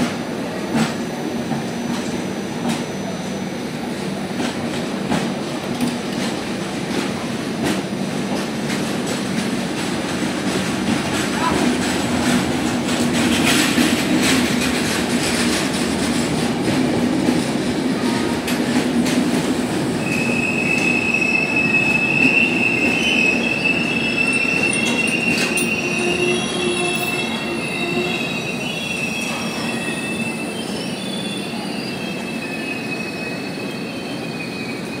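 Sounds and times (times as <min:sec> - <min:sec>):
train coaches rolling past: 0:00.0 - 0:35.0
high wheel squeal: 0:20.0 - 0:35.0.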